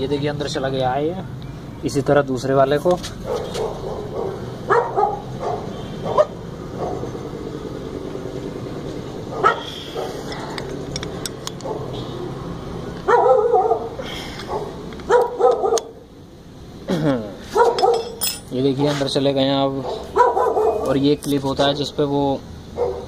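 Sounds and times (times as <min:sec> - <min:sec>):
dog barking: 0:03.2 - 0:07.1, 0:09.3 - 0:10.2, 0:11.6 - 0:12.0, 0:13.1 - 0:15.9, 0:17.5 - 0:18.1, 0:19.8 - 0:20.9, 0:22.8 - 0:23.0.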